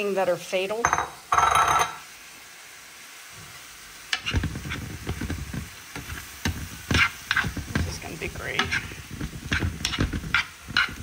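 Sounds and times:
meat sizzling in a skillet: 0:00.0 - 0:11.0
spoon knocking against pan: 0:00.8 - 0:02.0
metal spoon scraping a pan: 0:04.1 - 0:11.0.

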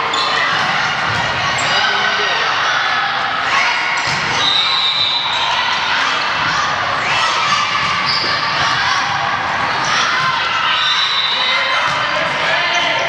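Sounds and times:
people shouting and chattering: 0:00.0 - 0:13.0
volleyball being hit and bouncing: 0:03.9 - 0:04.4
high shoe squeaks: 0:08.0 - 0:08.5.

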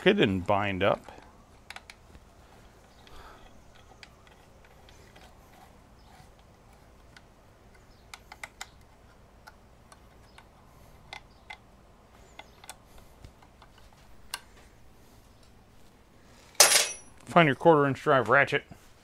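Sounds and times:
metallic clicks of screws: 0:02.8 - 0:14.6.

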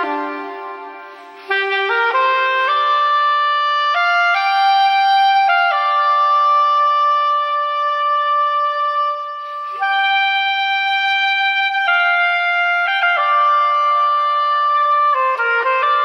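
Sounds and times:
soprano saxophone melody: 0:00.0 - 0:16.0
player breath: 0:00.9 - 0:01.5.

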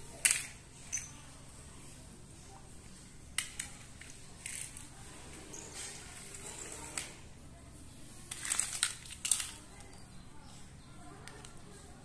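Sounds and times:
plastic toy clicks on tiled floor: 0:00.2 - 0:00.6, 0:08.3 - 0:10.0, 0:11.2 - 0:11.6.

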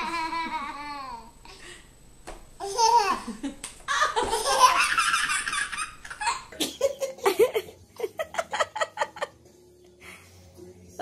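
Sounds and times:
baby laughing: 0:00.0 - 0:01.3, 0:02.6 - 0:07.8.

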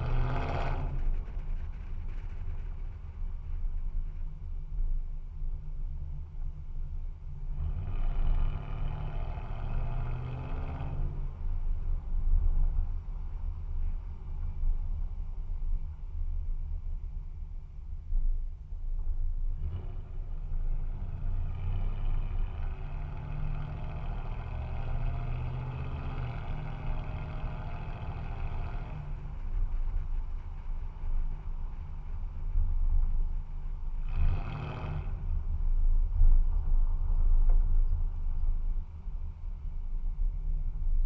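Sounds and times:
truck engine through straight pipe: 0:00.0 - 0:02.9, 0:07.5 - 0:11.6, 0:19.5 - 0:35.6.

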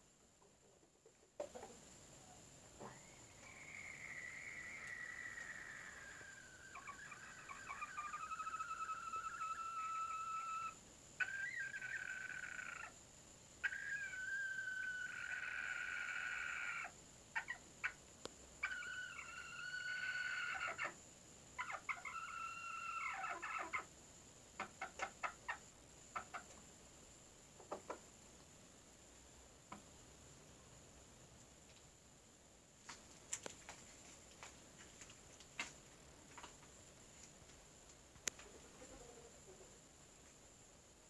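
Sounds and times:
chickens clucking: 0:00.4 - 0:01.9, 0:02.8 - 0:13.0, 0:13.6 - 0:18.0, 0:18.6 - 0:21.0, 0:21.6 - 0:23.9, 0:24.6 - 0:26.7, 0:27.6 - 0:28.1
chickens long drawn-out calls: 0:02.8 - 0:13.0, 0:13.6 - 0:18.0, 0:18.6 - 0:21.0, 0:21.6 - 0:23.9.

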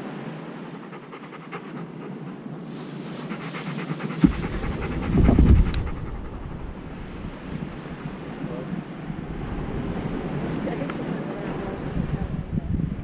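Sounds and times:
dog panting: 0:00.7 - 0:07.2
low rumble on microphone: 0:04.0 - 0:13.0.

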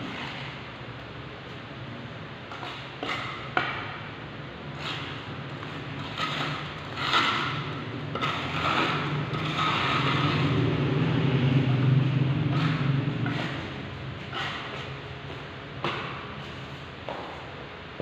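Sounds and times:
steady low hum: 0:00.0 - 0:18.0
trowel scraping mortar: 0:04.7 - 0:10.6, 0:12.4 - 0:15.0.

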